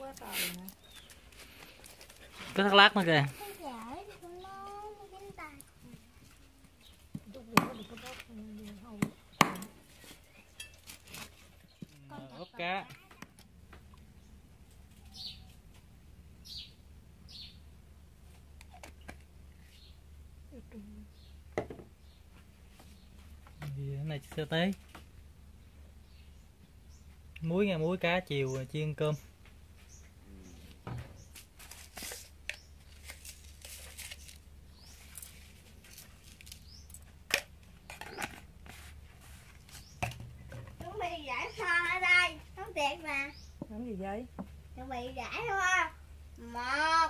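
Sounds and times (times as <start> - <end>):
high bird chirps: 15.0 - 15.6.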